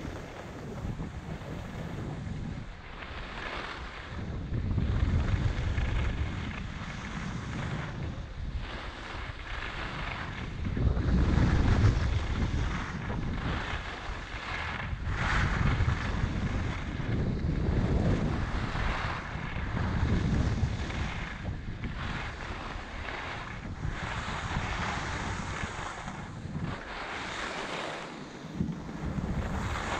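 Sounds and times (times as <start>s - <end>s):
wind buffeting microphone: 0.0s - 29.9s
skis hissing on snow: 6.9s - 10.4s, 11.0s - 29.9s.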